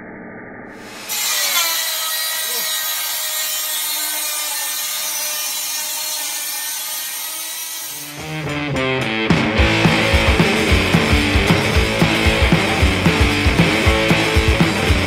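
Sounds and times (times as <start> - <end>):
circular saw cutting wood: 0.8 - 8.6.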